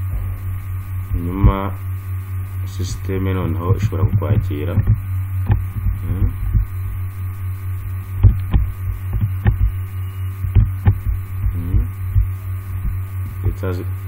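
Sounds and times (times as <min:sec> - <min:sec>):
low electrical hum: 0:00.0 - 0:14.0
sharp clicks: 0:08.2 - 0:09.7.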